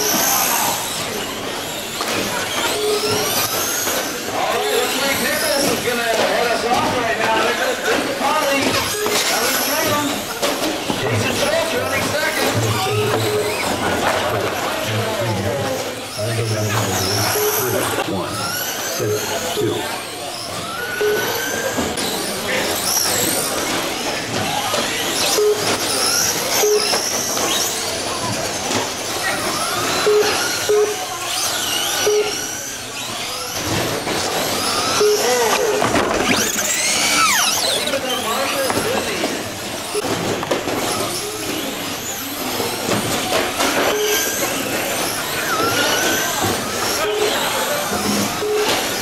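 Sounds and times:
rc truck motors whining: 0.0s - 49.0s
short beeps: 2.6s - 3.6s, 8.8s - 10.2s, 11.0s - 13.8s, 17.1s - 18.2s, 19.0s - 20.0s, 21.0s - 21.8s, 25.3s - 25.8s, 26.5s - 27.2s, 29.8s - 31.1s, 31.9s - 32.5s, 34.8s - 36.6s, 43.8s - 44.4s, 47.0s - 47.5s, 48.1s - 48.9s.

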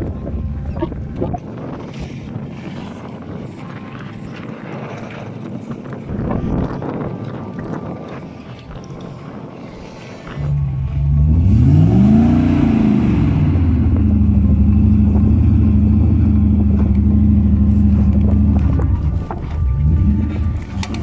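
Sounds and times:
truck engine revving hard: 11.0s - 18.8s.

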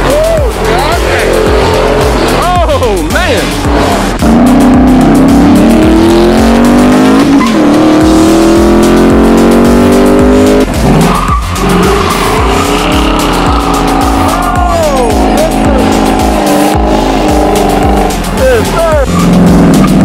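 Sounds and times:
car engine revving high: 0.0s - 20.0s
music with steady bass beat: 0.0s - 20.0s
tire squeal: 4.1s - 8.8s, 9.6s - 18.2s, 18.9s - 20.0s.

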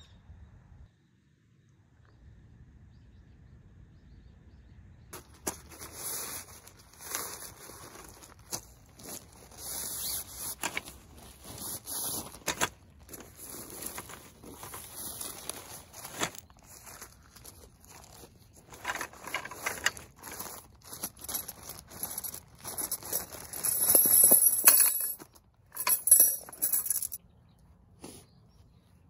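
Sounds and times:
fabric swishing and rustling: 5.2s - 18.3s.

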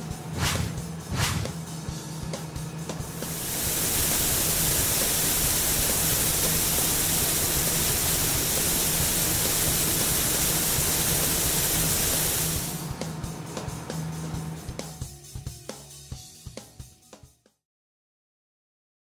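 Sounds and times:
loud steady hiss: 3.1s - 12.9s.

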